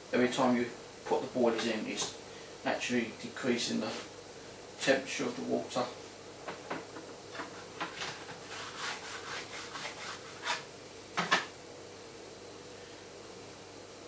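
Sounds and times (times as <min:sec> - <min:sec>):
hands rubbing paste: 0:08.3 - 0:10.6.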